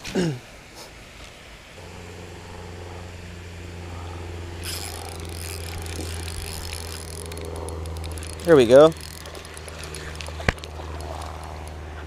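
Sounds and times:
low rumble: 0:01.8 - 0:12.0
fishing reel whirring and clicking: 0:03.9 - 0:12.0.

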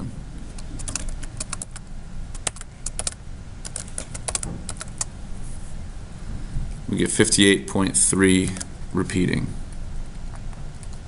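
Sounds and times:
keyboard key clicks: 0:02.4 - 0:05.1.

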